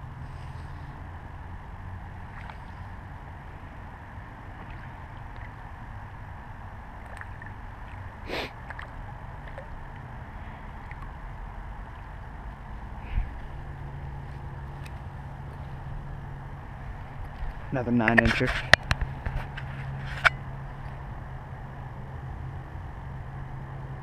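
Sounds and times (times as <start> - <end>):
steady low rumble: 0.0 - 24.0
fish splashing in water: 2.0 - 12.2.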